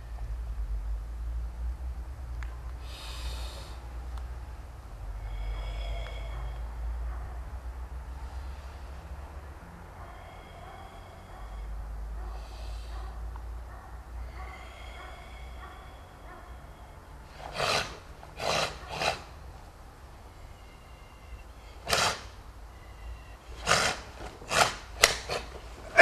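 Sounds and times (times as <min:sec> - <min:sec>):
sharp forceful exhalations: 0:02.8 - 0:03.9, 0:12.3 - 0:13.1, 0:14.5 - 0:19.5, 0:20.3 - 0:26.0.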